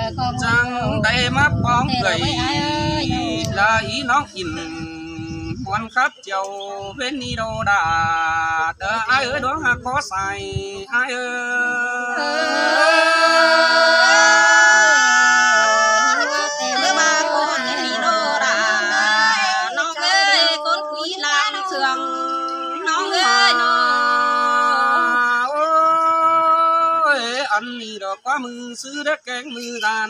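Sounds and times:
group singing unaccompanied: 0:00.0 - 0:05.6, 0:10.8 - 0:27.2.

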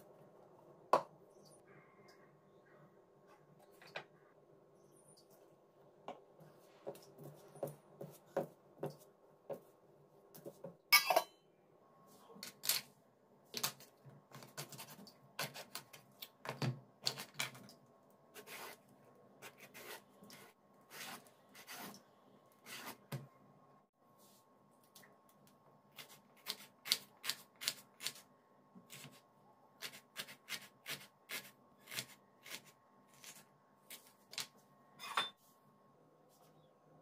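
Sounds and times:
faint steady hum: 0:31.3 - 0:37.0.

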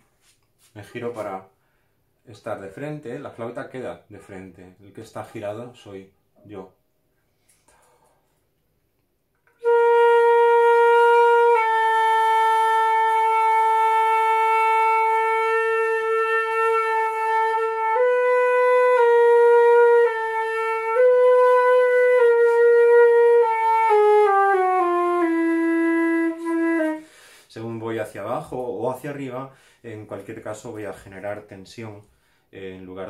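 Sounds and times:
flute playing long tones: 0:09.5 - 0:27.1.

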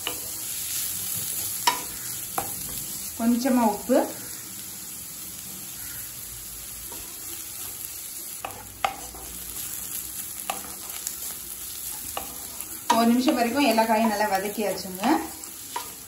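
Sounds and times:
spatula scraping a pan: 0:00.0 - 0:03.0, 0:06.8 - 0:16.0
vegetables sizzling in hot oil: 0:00.0 - 0:16.0.

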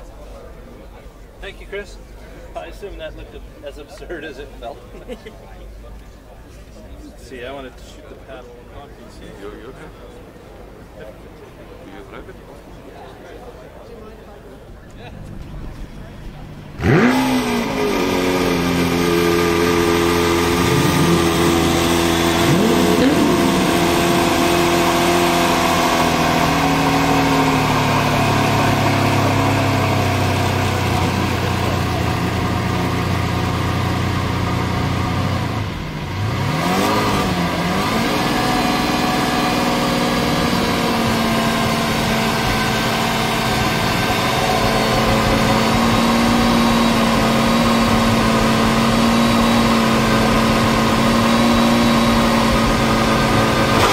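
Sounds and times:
car engine idling and revving: 0:15.2 - 0:53.9.

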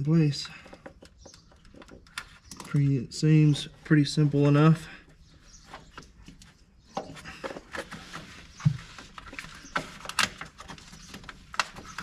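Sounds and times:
clicks and rattles of hoses: 0:00.0 - 0:03.7, 0:05.8 - 0:12.0.

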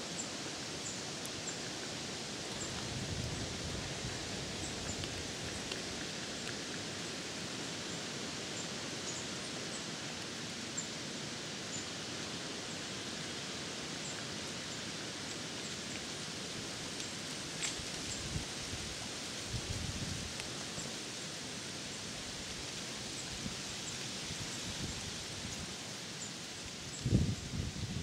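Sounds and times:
wind rustling through trees: 0:00.0 - 0:28.0.

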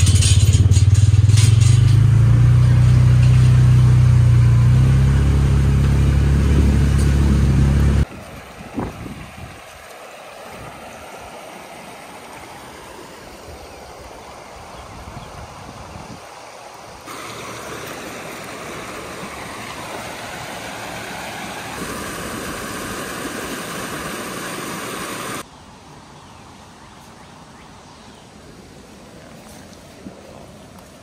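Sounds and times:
outdoor background noise: 0:00.0 - 0:31.0
floodwater rushing: 0:02.5 - 0:25.4.

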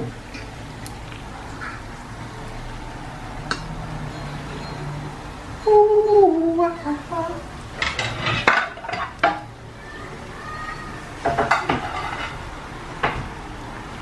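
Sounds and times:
metal utensil scraping a pan: 0:07.8 - 0:09.4, 0:11.3 - 0:12.4.

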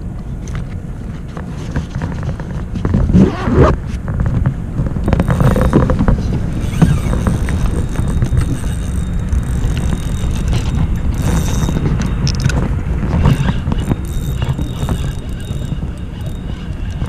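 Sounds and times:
wind buffeting microphone: 0:00.0 - 0:17.0
fishing reel clicks and knocks: 0:05.0 - 0:17.0.

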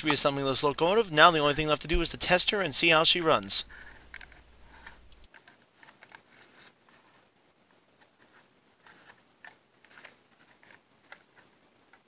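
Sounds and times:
room hiss: 0:00.0 - 0:05.3.

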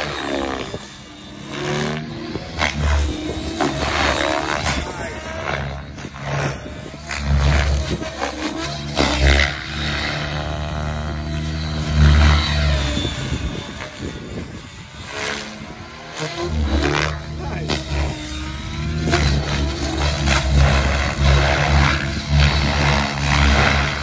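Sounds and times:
electric motor whining: 0:00.0 - 0:24.0
rotor blades whooshing: 0:00.0 - 0:24.0.

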